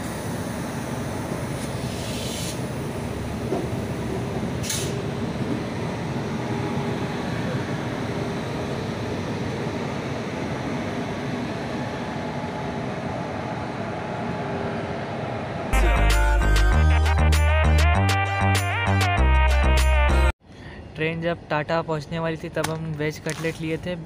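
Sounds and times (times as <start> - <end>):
train wheels rumbling on track: 0.0 - 12.0.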